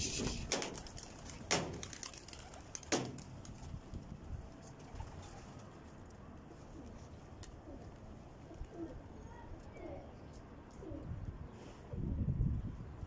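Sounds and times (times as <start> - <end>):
pigeon wings flapping: 0.0 - 4.0.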